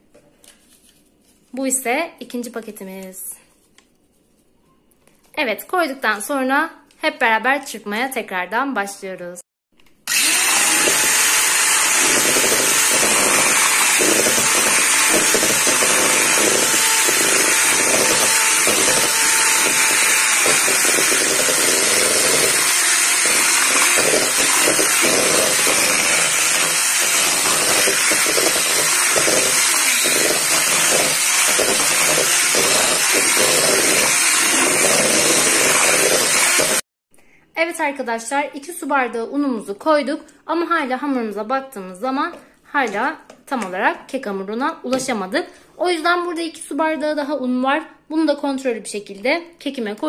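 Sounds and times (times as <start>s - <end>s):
electric hand mixer whining: 10.1s - 36.9s.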